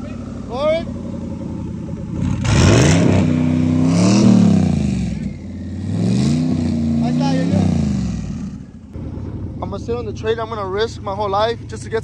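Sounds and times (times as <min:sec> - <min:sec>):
pickup truck engine revving: 0:00.0 - 0:09.1.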